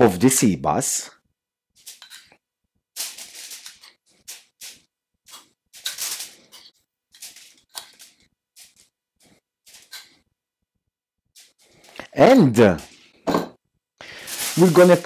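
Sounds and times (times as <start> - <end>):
spoon scraping ceramic bowl: 1.8 - 2.4
foil crinkling: 3.0 - 8.9, 14.0 - 15.0.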